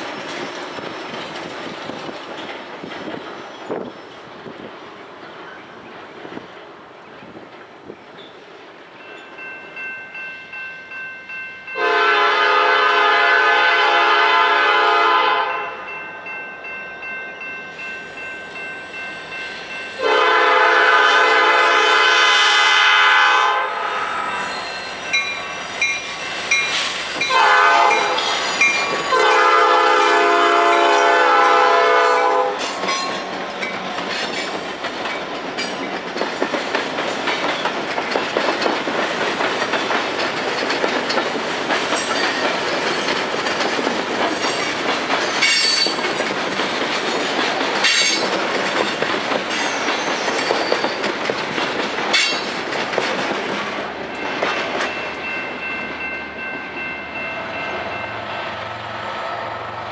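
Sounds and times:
train wheels clicking over rail joints: 0.0s - 9.3s, 24.9s - 29.4s, 32.5s - 56.7s
locomotive air horn: 11.8s - 15.8s, 20.0s - 24.4s, 27.3s - 28.5s, 29.1s - 32.6s.

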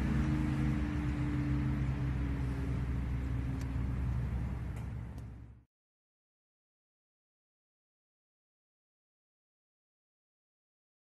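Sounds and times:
boat motor running: 0.0s - 5.6s.

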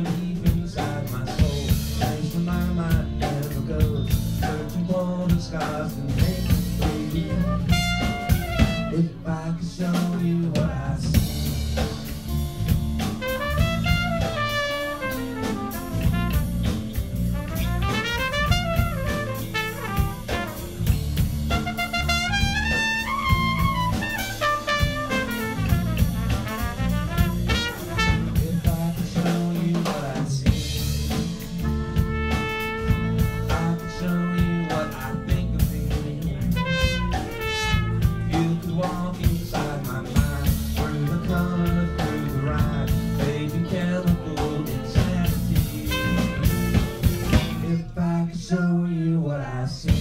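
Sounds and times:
drum kit: 0.0s - 48.0s
guitars: 0.0s - 48.6s
bass: 0.0s - 50.0s
trumpet melody: 6.8s - 9.4s, 13.0s - 29.3s, 31.0s - 39.2s, 40.4s - 47.9s.

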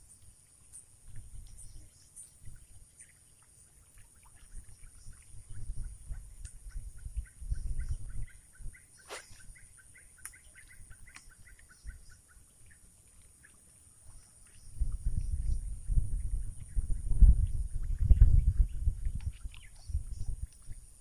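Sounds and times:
low rumbling on microphone: 4.5s - 9.6s, 14.1s - 21.0s
fishing rod cast swish: 9.0s - 9.6s.

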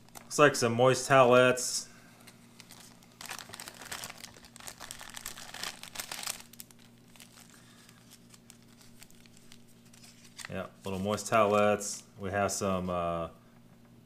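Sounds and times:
wipe packets rustling: 2.2s - 12.0s
plastic bag crinkling: 2.3s - 11.8s.

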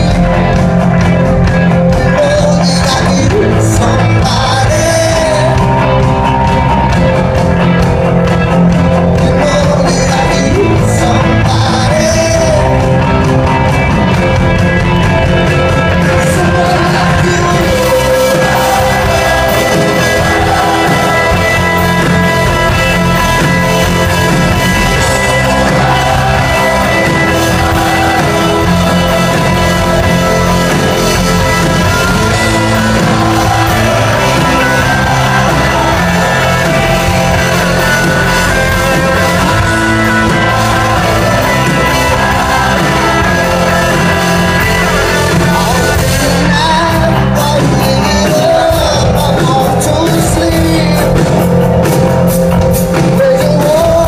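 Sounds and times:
live rock band: 0.0s - 54.0s
man singing lead vocal: 1.8s - 6.2s, 9.0s - 13.2s, 16.0s - 51.6s, 52.8s - 54.0s.

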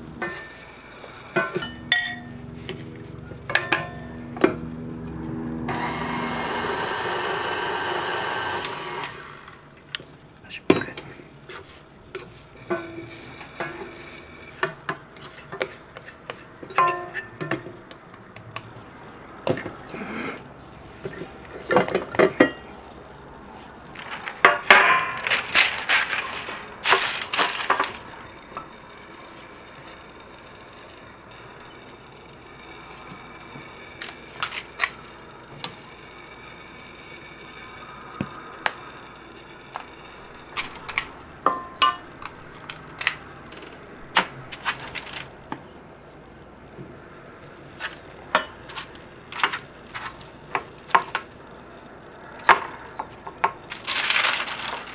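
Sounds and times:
steady whir: 0.0s - 10.3s, 23.9s - 54.9s
utensils scraping metal bowl: 0.2s - 2.8s, 11.5s - 17.5s
parchment paper crinkling: 23.0s - 31.0s, 44.2s - 45.6s, 53.5s - 54.9s.

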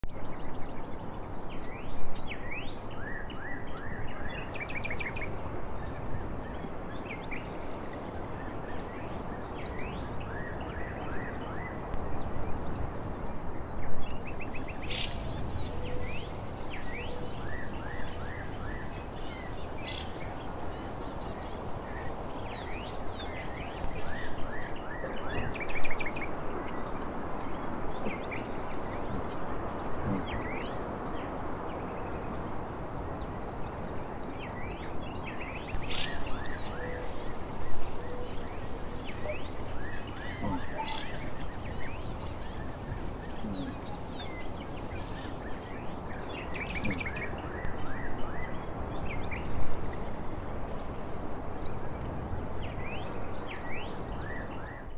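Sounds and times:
steady background hiss: 12.1s - 26.7s, 35.2s - 46.8s
birds chirping: 14.3s - 25.2s, 35.4s - 46.2s.

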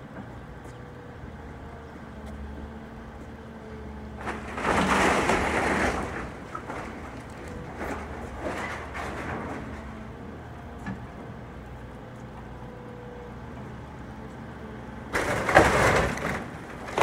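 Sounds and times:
excavator diesel engine running: 0.0s - 17.0s.

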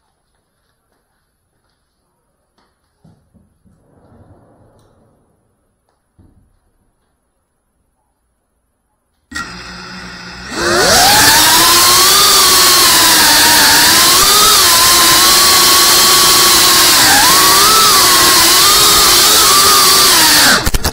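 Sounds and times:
quadcopter motors whining: 9.3s - 20.9s.

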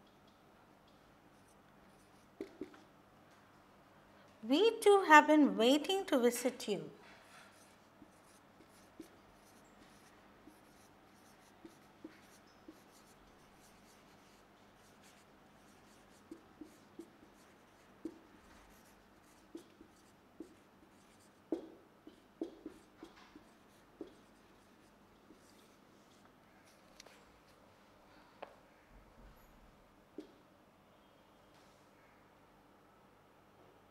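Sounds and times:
marker pen writing on whiteboard: 0.0s - 2.9s, 7.0s - 27.2s, 30.2s - 30.4s.

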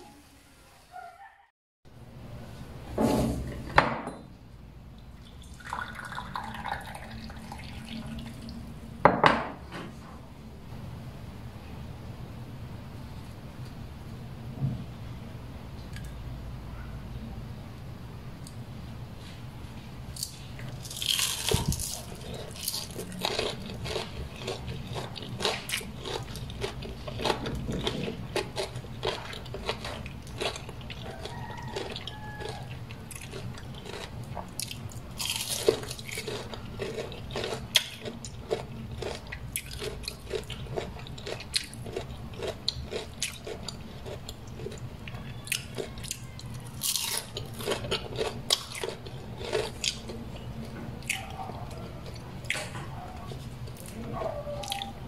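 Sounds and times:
person chewing crispy food: 20.1s - 55.0s.

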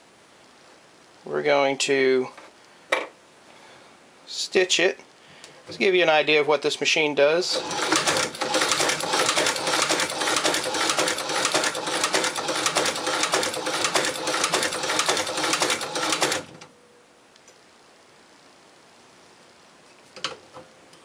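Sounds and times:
sewing machine clatter: 7.5s - 16.6s.

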